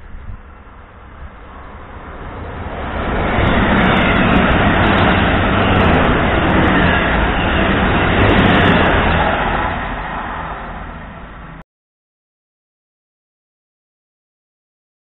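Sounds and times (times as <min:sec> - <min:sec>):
passenger train passing at speed: 0:00.0 - 0:11.6.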